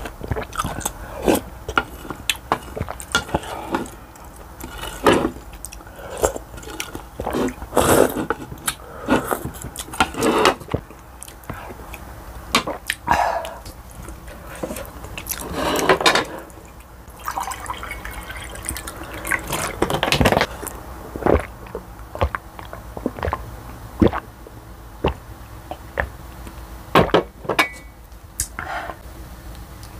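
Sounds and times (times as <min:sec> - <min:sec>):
water pouring into glass mug: 0:17.1 - 0:20.0.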